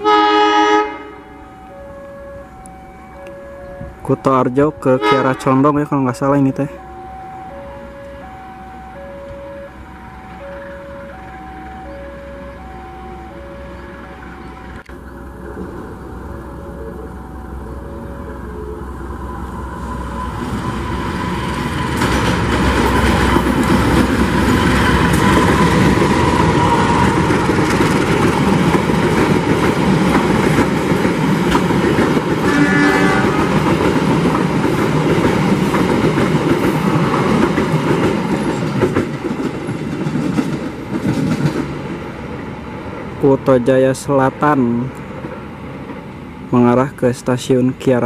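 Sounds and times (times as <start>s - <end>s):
train horn blast: 0.0s - 4.0s, 4.7s - 5.8s, 32.4s - 33.7s
train carriages rumbling past: 0.0s - 48.0s.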